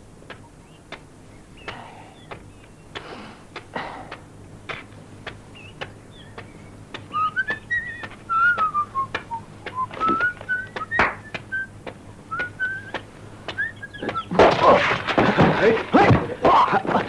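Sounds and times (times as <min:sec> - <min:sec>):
sharp taps: 0:00.2 - 0:14.4
person whistling a tune: 0:07.1 - 0:11.7, 0:12.3 - 0:14.3.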